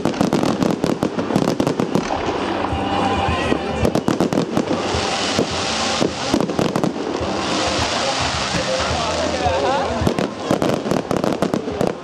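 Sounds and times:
hiss of falling stars: 4.1 - 12.0.

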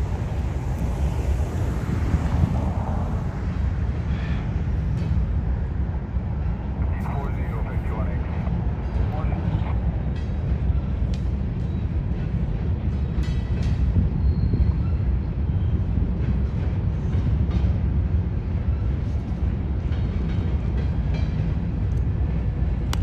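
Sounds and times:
train rolling past: 0.0 - 23.0.

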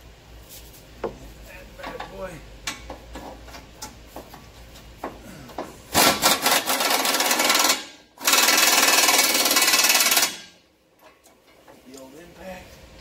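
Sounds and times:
pneumatic air tool rattling: 5.8 - 10.6.

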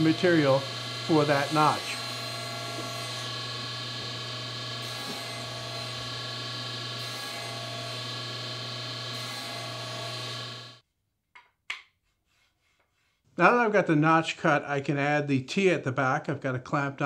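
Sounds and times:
table saw cutting wood: 0.0 - 10.8.

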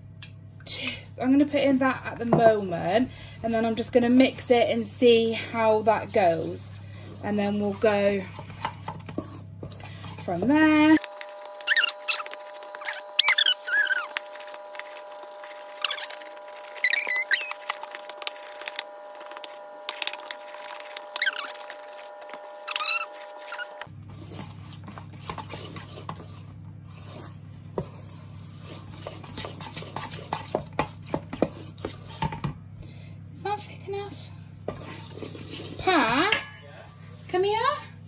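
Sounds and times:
steady low hum: 0.0 - 38.0
metal spoon scraping a steel bowl: 3.5 - 18.8, 34.7 - 36.8.

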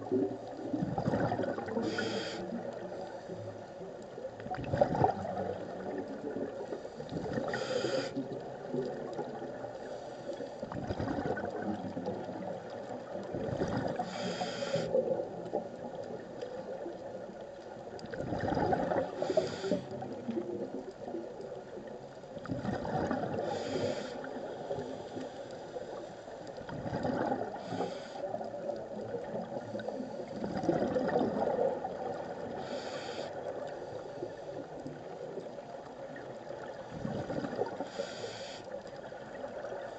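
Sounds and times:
exhaled bubbles gurgling: 0.0 - 39.9
regulator inhale hiss: 1.7 - 3.5, 6.6 - 8.3, 9.8 - 10.6, 14.0 - 15.1, 19.1 - 20.1, 23.3 - 26.5, 27.5 - 28.4, 32.4 - 34.8, 37.8 - 39.0.

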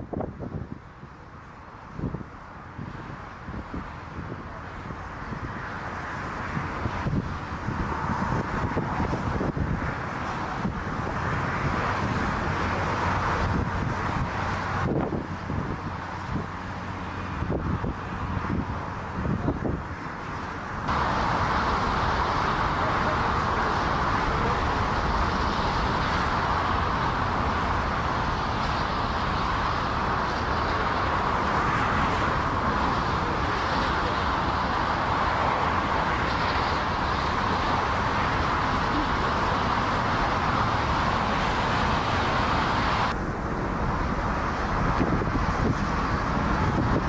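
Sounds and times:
jet engines running: 0.0 - 47.0.

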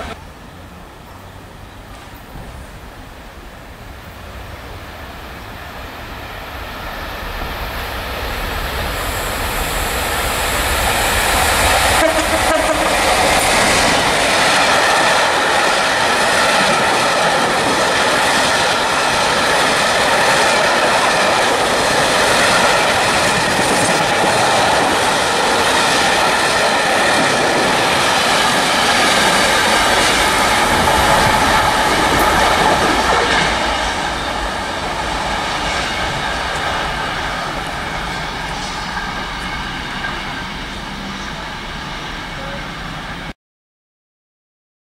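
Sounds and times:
freight train rumbling past: 0.0 - 43.4.

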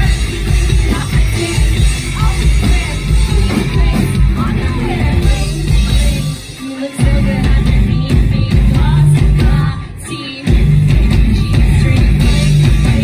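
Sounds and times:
loud rock music with singing: 0.0 - 13.0.

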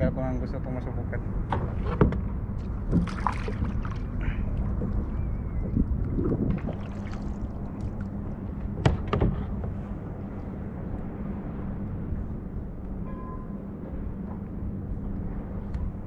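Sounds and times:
wind buffeting microphone: 0.0 - 16.0
water lapping around kayak: 1.3 - 13.0.

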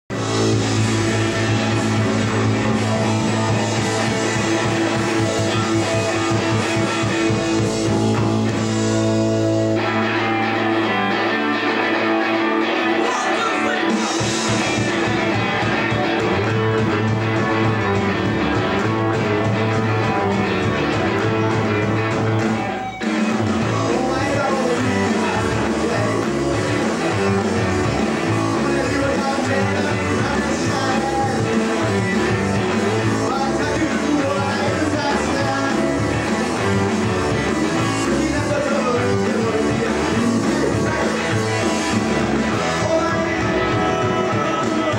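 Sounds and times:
man singing: 0.1 - 8.6, 12.6 - 15.9, 23.4 - 44.9
live rock band playing: 0.1 - 44.9.

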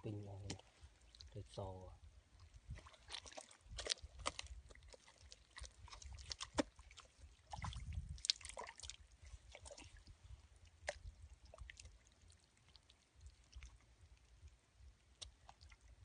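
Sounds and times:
hand squelching in wet mud: 2.5 - 13.8.

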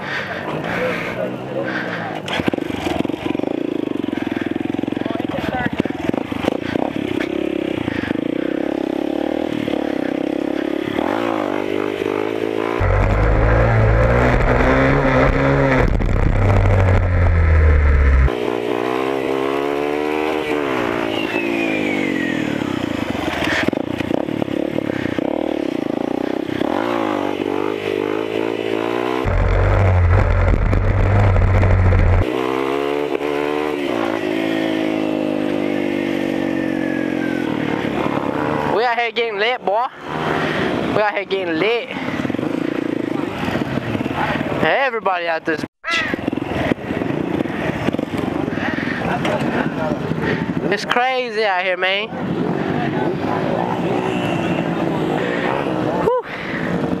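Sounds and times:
dirt bike engine revving: 0.1 - 44.5
loud low rumble: 12.8 - 18.3, 29.2 - 32.2.

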